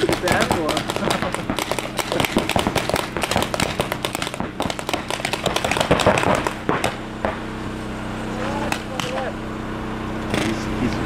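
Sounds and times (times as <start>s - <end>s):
paintball markers firing rapidly: 0.0s - 7.4s, 8.7s - 9.2s.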